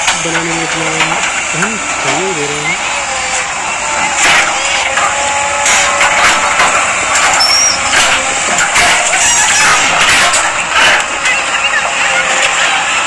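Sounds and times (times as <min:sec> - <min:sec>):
diesel engine under load: 0:00.0 - 0:13.0
bucket clanking and scraping: 0:04.2 - 0:12.8.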